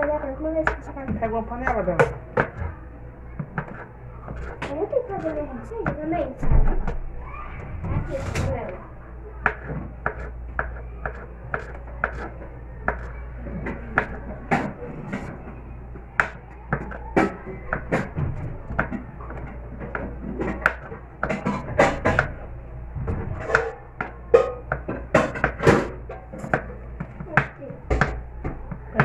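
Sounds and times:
knife tapping cutting board: 0:09.4 - 0:12.3.

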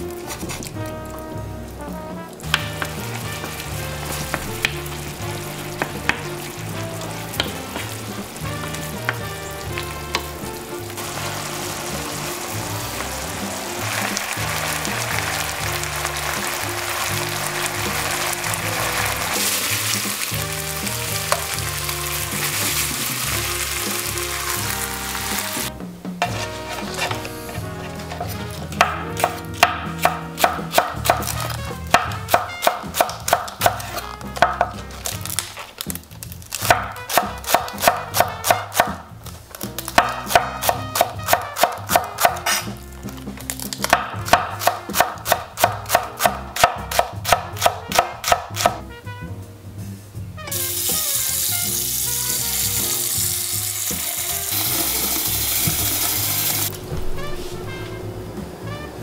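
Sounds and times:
meat sizzling in a pan: 0:00.0 - 0:48.0, 0:50.4 - 0:56.8
background music: 0:00.0 - 0:59.0
knife chopping on wooden board: 0:02.4 - 0:04.9, 0:05.8 - 0:06.4, 0:07.3 - 0:10.4, 0:26.2 - 0:35.9, 0:36.6 - 0:39.0, 0:39.8 - 0:42.8, 0:43.6 - 0:48.8.

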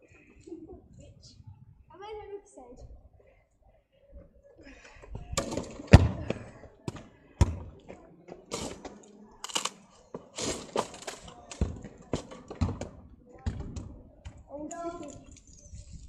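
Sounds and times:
irregular thuds and knocks: 0:10.2 - 0:14.4.

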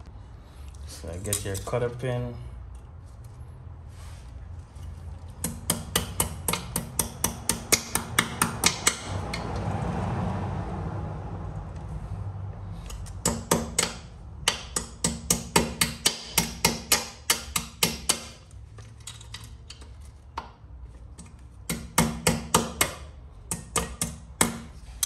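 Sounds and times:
sharp metal taps: 0:05.3 - 0:09.5, 0:12.9 - 0:18.4.

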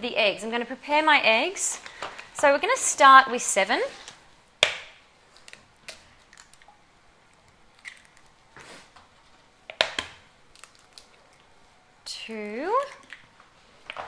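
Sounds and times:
eggshells cracking: 0:04.6 - 0:08.6, 0:09.6 - 0:11.6.

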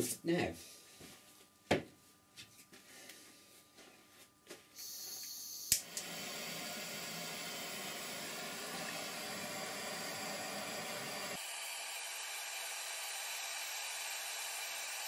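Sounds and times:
blowtorch ignition click: 0:05.7 - 0:08.0
blowtorch flame hissing: 0:05.7 - 0:15.0
blowtorch gas hissing: 0:05.7 - 0:15.0.

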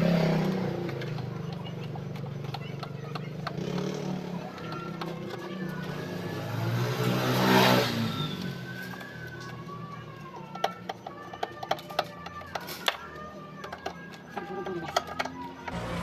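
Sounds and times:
vehicle engine driving past: 0:15.7 - 0:16.0.

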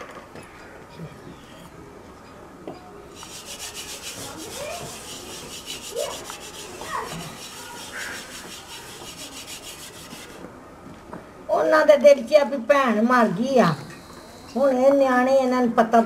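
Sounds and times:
hand rubbing food in stone mortar: 0:03.1 - 0:10.5.

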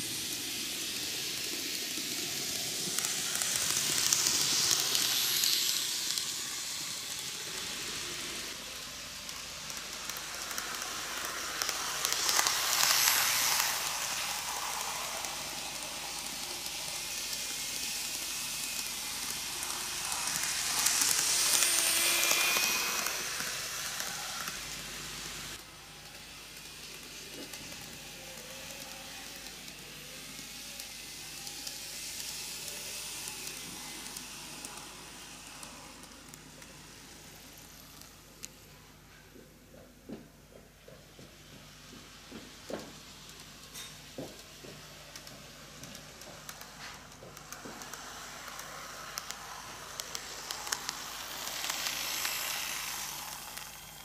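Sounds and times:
model train wheels rattling on rails: 0:00.0 - 0:54.0.

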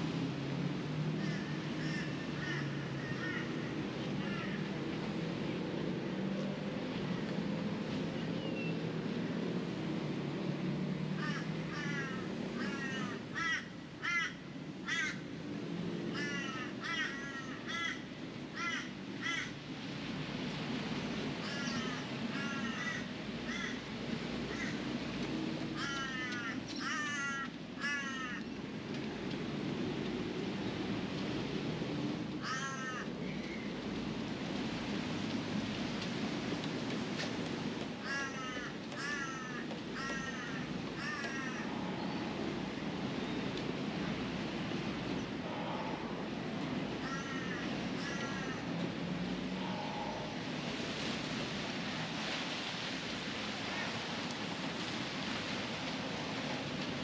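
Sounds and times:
bird calling: 0:47.0 - 0:48.6.

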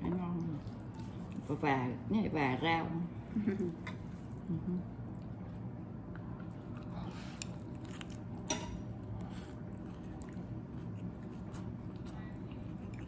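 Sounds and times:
quiet chewing: 0:03.9 - 0:13.0.

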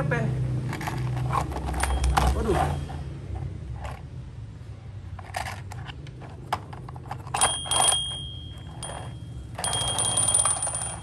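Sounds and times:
toy car rolling on wood: 0:00.7 - 0:04.0, 0:05.1 - 0:11.0
high steady ringing tone: 0:01.8 - 0:03.2, 0:07.4 - 0:11.0.

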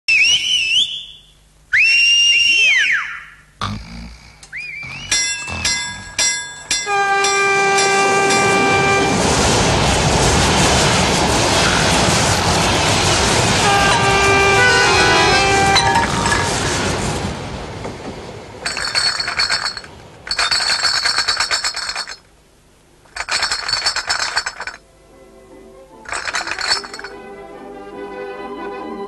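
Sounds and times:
glass bottles clinking: 0:05.1 - 0:08.5, 0:18.6 - 0:22.3, 0:23.1 - 0:24.8, 0:26.1 - 0:27.2.

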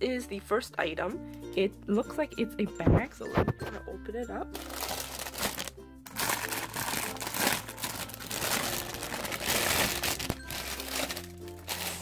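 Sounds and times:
plastic wrapping crinkling: 0:04.6 - 0:12.0.

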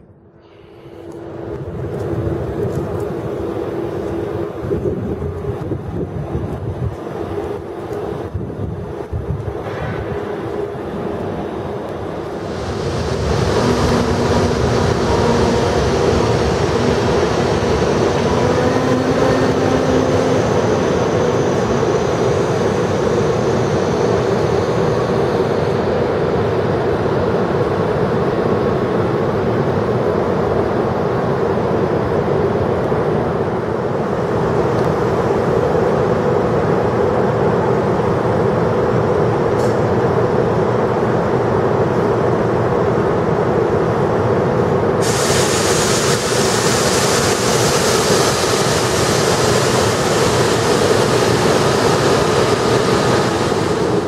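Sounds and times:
train rushing noise and hum: 0:00.0 - 0:54.0
loud hiss: 0:45.0 - 0:54.0.

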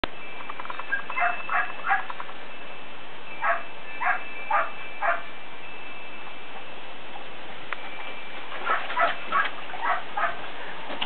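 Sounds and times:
dog barking: 0:00.9 - 0:02.1, 0:03.4 - 0:05.3, 0:08.6 - 0:10.4.

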